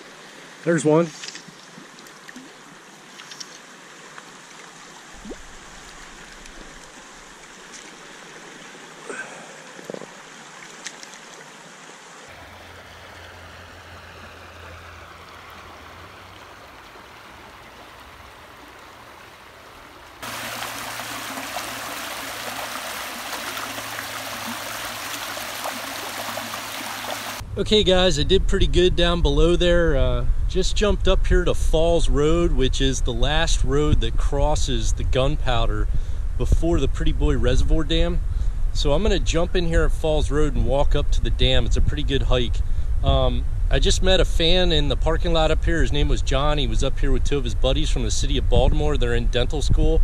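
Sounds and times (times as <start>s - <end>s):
rocky stream running: 0.0s - 27.4s
water rushing down rocky cascade: 20.2s - 27.4s.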